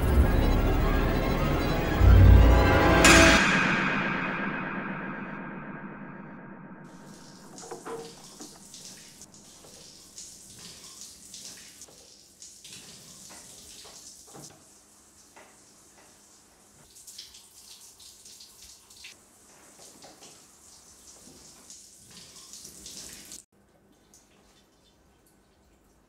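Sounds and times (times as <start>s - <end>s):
water trickling and dripping: 6.9s - 26.0s.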